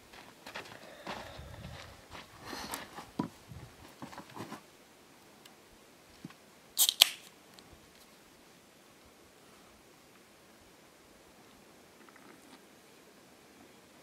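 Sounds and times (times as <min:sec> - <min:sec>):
can ring-pull cracking open: 0:06.8 - 0:07.3.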